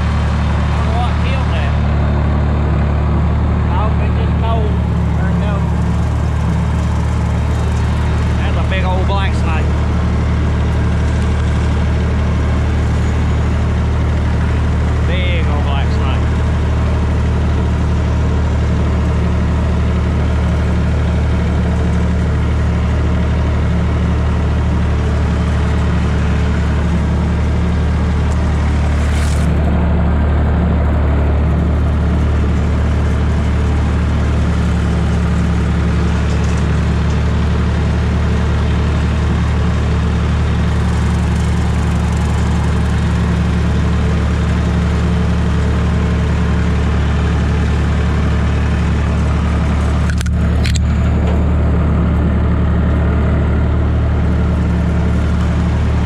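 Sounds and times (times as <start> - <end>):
tractor engine running under load: 0.0 - 56.0
rotary cutter mowing grass: 3.7 - 29.7, 32.2 - 50.8.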